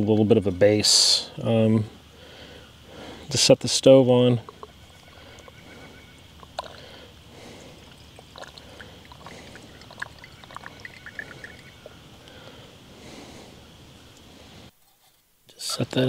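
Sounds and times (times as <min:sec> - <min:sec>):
small ticks and drips: 0:04.4 - 0:05.6, 0:06.2 - 0:12.5
liquid trickling into a cup: 0:06.4 - 0:06.8, 0:07.8 - 0:12.0.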